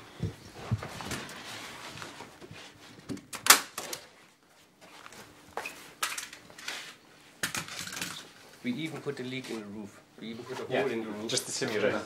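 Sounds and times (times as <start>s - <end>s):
roofing membrane rustling: 0.0s - 3.1s.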